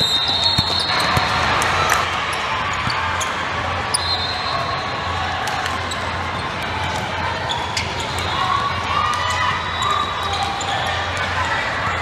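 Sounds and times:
shoe squeaks: 0:00.0 - 0:01.3
crowd noise in large hall: 0:00.0 - 0:12.0.

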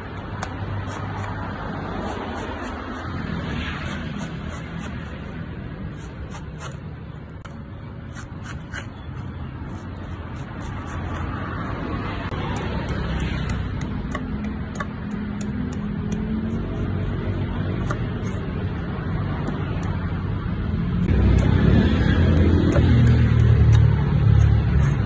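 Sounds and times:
street traffic rumble: 0:00.0 - 0:25.0
knife slicing coconut husk: 0:00.2 - 0:11.7, 0:12.3 - 0:18.6, 0:21.1 - 0:25.0.

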